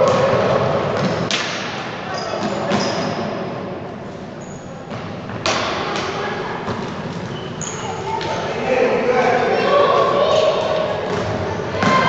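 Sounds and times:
hall chatter: 4.2s - 12.0s.

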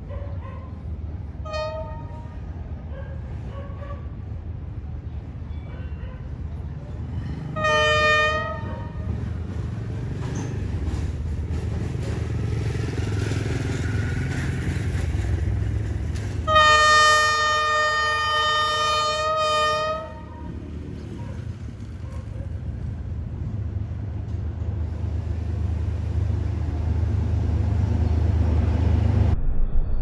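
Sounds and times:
locomotive and train rumble: 0.0s - 30.0s
locomotive air horn blasts: 1.4s - 2.4s, 7.5s - 9.2s, 16.4s - 20.6s.

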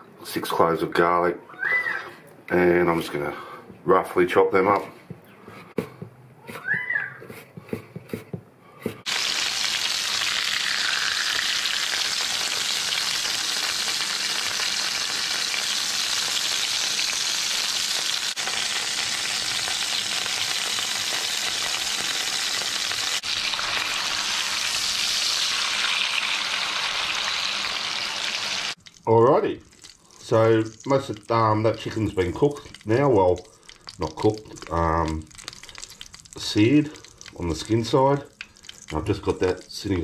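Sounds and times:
knife chopping on wooden board: 7.2s - 9.1s
chicken sizzling in hot oil: 9.1s - 40.0s.

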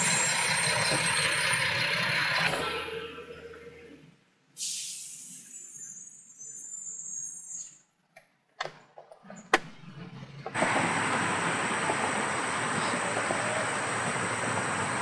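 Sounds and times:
loud steady rushing noise: 10.6s - 15.0s.

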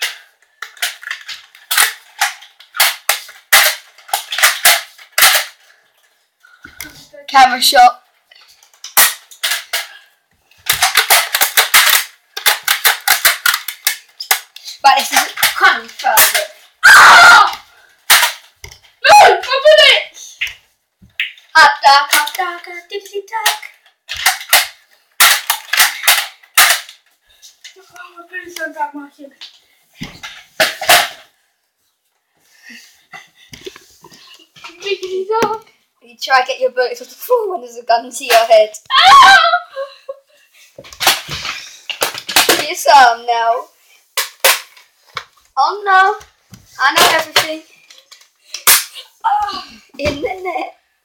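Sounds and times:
toy dart blaster clacks: 10.7s - 15.6s.

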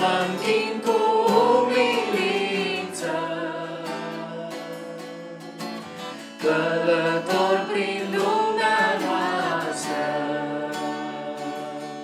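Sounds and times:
woman singing a hymn: 0.0s - 4.0s, 6.4s - 10.0s
acoustic guitar: 0.0s - 12.0s.

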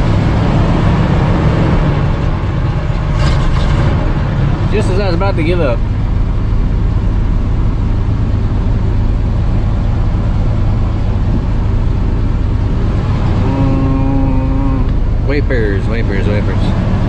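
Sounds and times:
truck engine idling: 4.0s - 17.0s.

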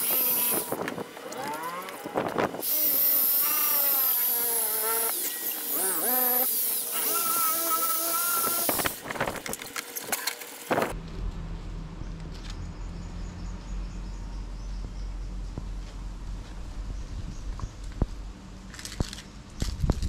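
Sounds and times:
electric drill wire brush scouring pan: 0.0s - 0.8s, 2.6s - 9.0s
low hum: 10.8s - 20.0s.

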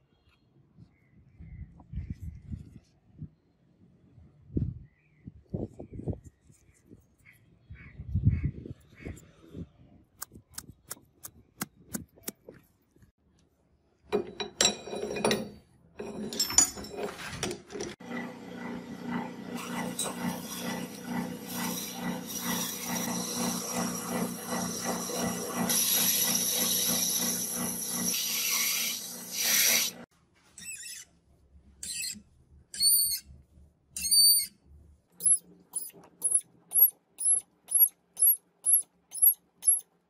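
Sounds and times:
lathe cutting squeal: 19.0s - 30.0s
drill squeaking on brass: 30.6s - 31.1s, 31.8s - 32.2s, 32.8s - 33.2s, 34.0s - 34.5s, 35.2s - 39.8s.

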